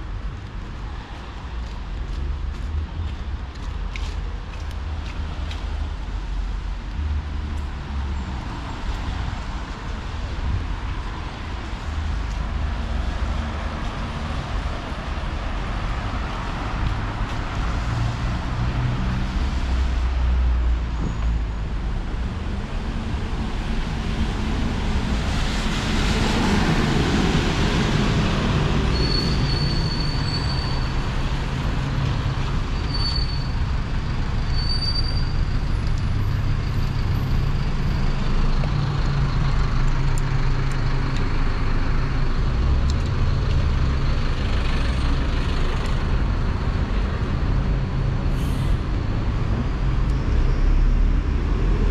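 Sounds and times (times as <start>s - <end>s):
bus diesel engine running: 30.4s - 50.1s
short high squeaks: 32.8s - 33.6s.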